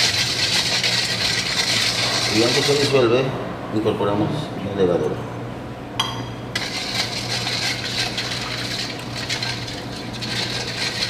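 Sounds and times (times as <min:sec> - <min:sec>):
water swishing in a bowl: 0:00.0 - 0:03.1, 0:06.6 - 0:11.0
low steady hum: 0:00.0 - 0:11.0.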